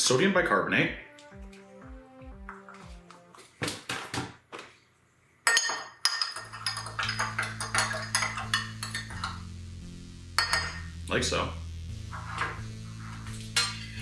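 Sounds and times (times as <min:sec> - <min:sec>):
spoon clinking against glass: 0:05.5 - 0:09.4, 0:10.4 - 0:10.8.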